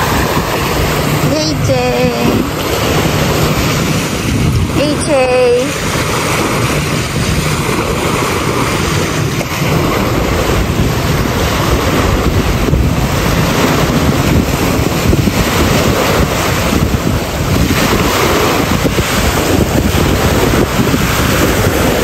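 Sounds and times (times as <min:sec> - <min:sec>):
small waves breaking on sand: 0:00.0 - 0:22.0
wind buffeting microphone: 0:00.0 - 0:22.0.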